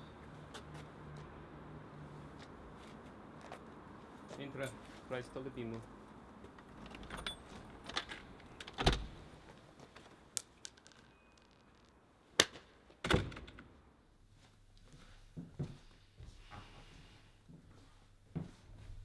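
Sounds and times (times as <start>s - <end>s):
keys jangling: 6.9s - 8.2s.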